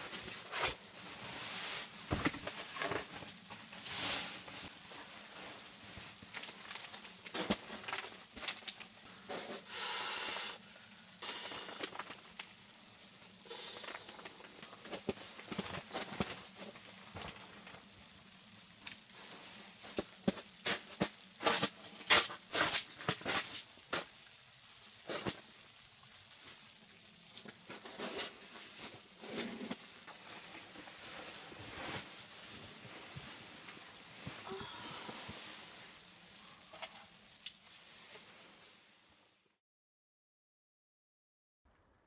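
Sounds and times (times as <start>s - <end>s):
sleeping bag rustling: 0.0s - 9.7s, 27.6s - 38.8s.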